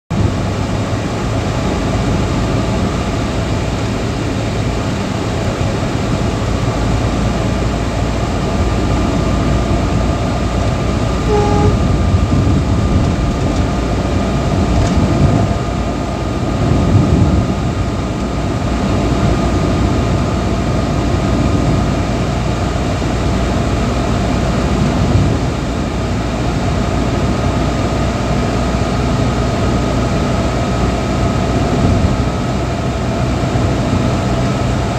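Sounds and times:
tyre and engine rumble: 0:00.1 - 0:34.9
wind noise: 0:07.1 - 0:26.8, 0:31.2 - 0:34.9
short beep: 0:11.2 - 0:11.9.

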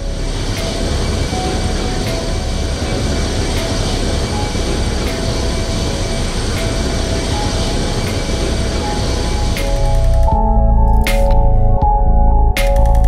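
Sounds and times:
jet engines running: 0:00.0 - 0:10.3.

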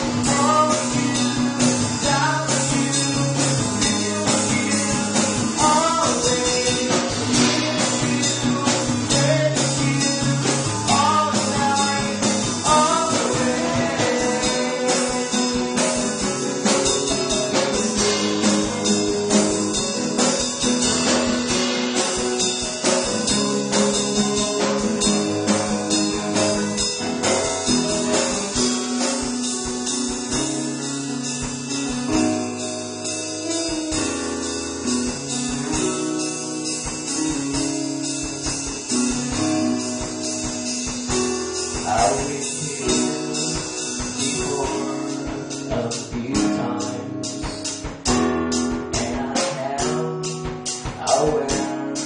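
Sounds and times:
person singing: 0:00.0 - 0:28.9, 0:41.7 - 0:48.2, 0:48.8 - 0:52.0
drums: 0:00.0 - 0:52.0
guitars: 0:00.0 - 0:52.0.

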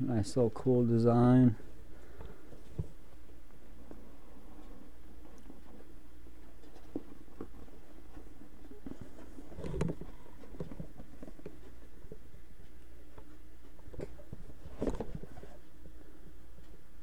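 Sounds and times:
steady low hum: 0:00.0 - 0:17.0
box unpacking taps and rustles: 0:06.6 - 0:12.2, 0:13.9 - 0:15.6.

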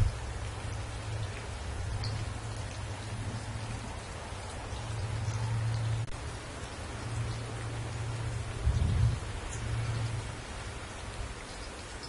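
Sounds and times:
steady rain falling: 0:00.0 - 0:12.0.

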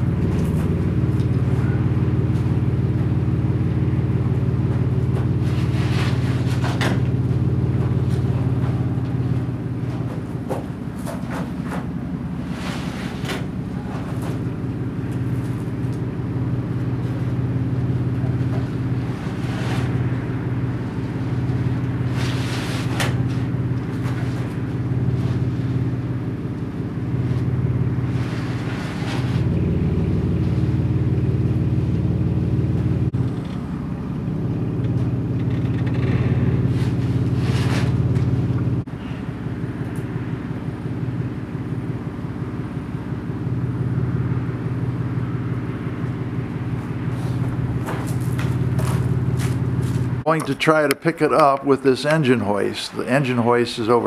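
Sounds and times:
engine idling: 0:00.0 - 0:54.0
knocks and rustles of sander: 0:04.2 - 0:26.0, 0:34.8 - 0:38.9, 0:46.6 - 0:50.2.

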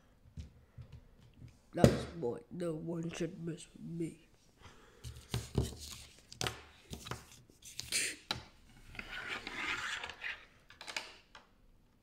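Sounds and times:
plastic scraping and rubbing: 0:08.8 - 0:11.0.

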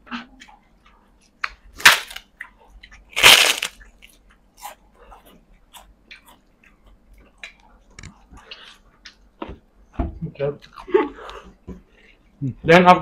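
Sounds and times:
crunchy bites: 0:01.5 - 0:02.3, 0:03.1 - 0:04.8
chewing with wet mouth clicks: 0:03.8 - 0:09.3.

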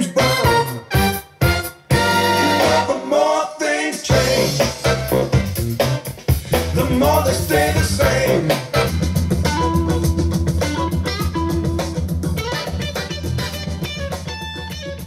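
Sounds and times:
person singing: 0:00.0 - 0:00.8, 0:01.9 - 0:05.4, 0:06.5 - 0:08.9
band with guitar bass and drums: 0:00.0 - 0:02.9, 0:04.1 - 0:15.0.

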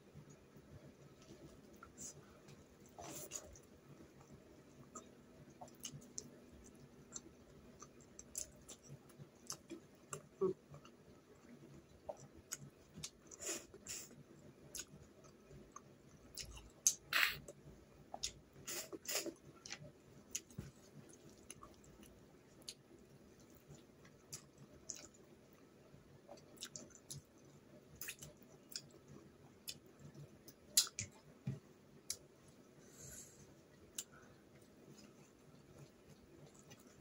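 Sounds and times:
person chewing with wet mouth smacks: 0:24.1 - 0:25.2, 0:30.5 - 0:31.2.

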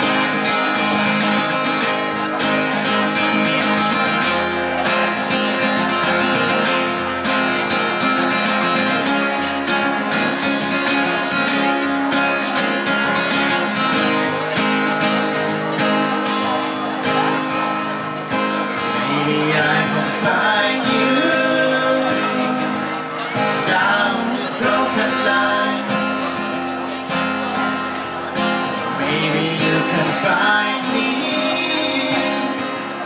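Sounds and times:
acoustic guitars strumming: 0:00.0 - 0:33.0
person singing: 0:18.8 - 0:26.3, 0:28.9 - 0:33.0.

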